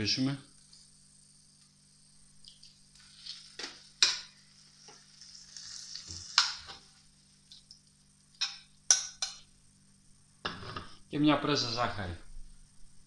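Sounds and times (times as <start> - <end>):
food sizzling in a frying pan: 0.5 - 10.8.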